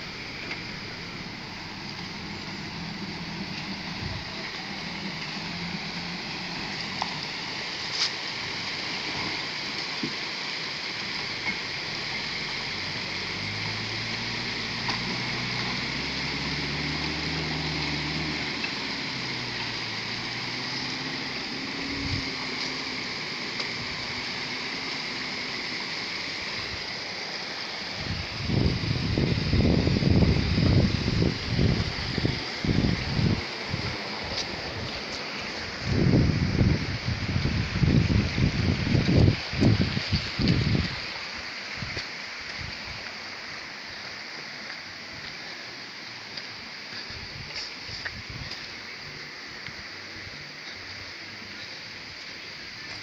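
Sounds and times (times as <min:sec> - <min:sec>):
pickup truck engine pulling away: 0:00.0 - 0:09.8, 0:11.0 - 0:26.8
water running across a road: 0:00.0 - 0:53.0.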